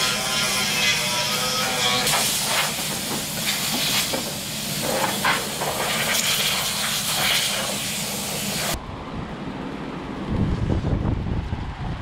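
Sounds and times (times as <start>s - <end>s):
compressed air blow gun hissing: 2.0s - 8.8s.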